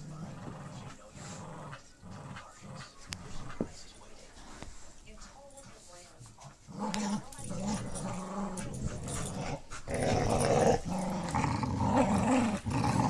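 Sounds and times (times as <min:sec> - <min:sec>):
dogs growling in play: 0:00.0 - 0:03.7, 0:06.3 - 0:13.0.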